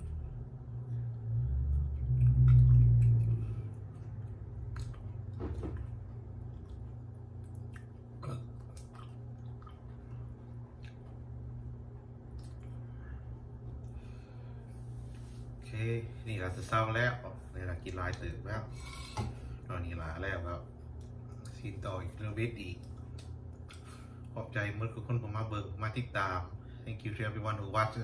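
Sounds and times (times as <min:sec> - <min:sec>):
low rumble: 0:00.0 - 0:07.8
person chewing noodles: 0:00.0 - 0:14.0
steady low hum: 0:00.0 - 0:28.0
wet mouth clicks: 0:02.0 - 0:05.3, 0:06.5 - 0:09.9.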